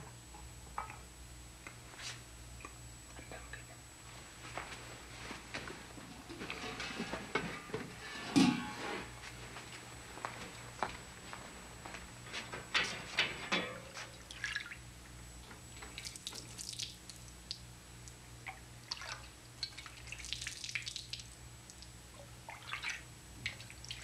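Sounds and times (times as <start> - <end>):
water dripping and splashing: 14.2 - 14.8, 15.8 - 24.0.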